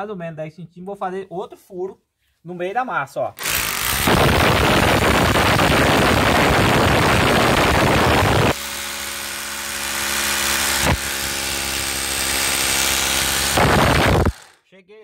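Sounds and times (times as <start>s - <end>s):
rotary hammer drilling into brick: 3.4s - 14.6s.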